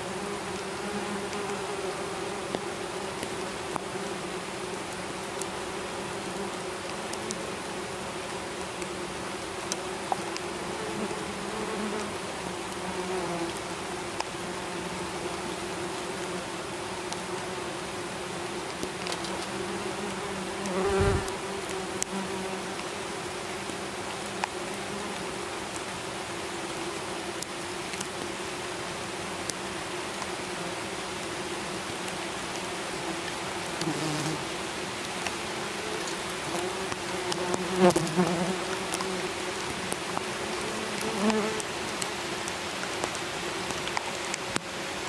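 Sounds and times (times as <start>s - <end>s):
wasps buzzing: 18.8s - 22.6s, 33.7s - 34.5s, 35.2s - 42.0s.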